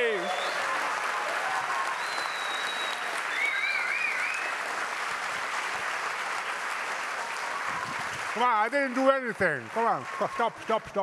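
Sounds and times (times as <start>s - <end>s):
audience applauding: 0.0s - 11.0s
high wavering whistle: 2.0s - 4.5s.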